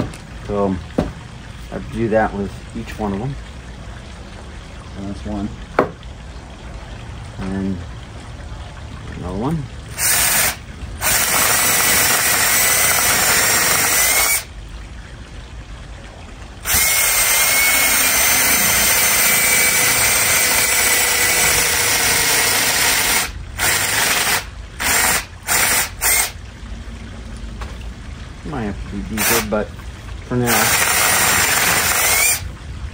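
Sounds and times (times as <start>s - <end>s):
cordless drill boring into wood: 10.0s - 14.5s, 16.6s - 26.4s, 29.2s - 29.5s, 30.5s - 32.4s.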